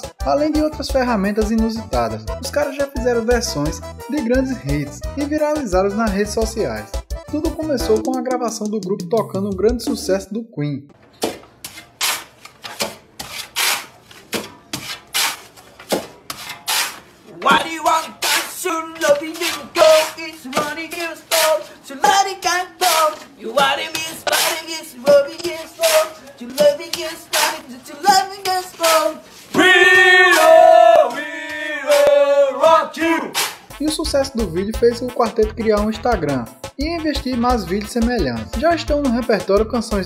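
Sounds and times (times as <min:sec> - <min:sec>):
shovel scraping sandy floor: 0:11.3 - 0:21.8, 0:22.8 - 0:29.7, 0:33.3 - 0:33.8
men singing without instruments: 0:17.4 - 0:32.8
sharp percussive hits: 0:33.3 - 0:33.9.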